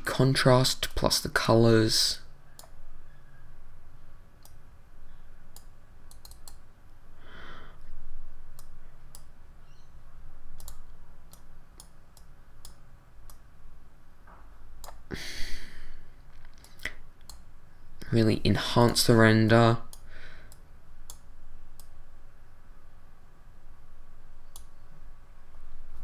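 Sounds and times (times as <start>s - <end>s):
computer mouse clicks: 2.5s - 2.8s, 4.4s - 4.6s, 5.5s - 6.7s, 8.5s - 9.3s, 10.6s - 13.4s, 14.8s - 15.1s, 16.4s - 17.5s, 19.9s - 22.0s, 24.4s - 24.8s.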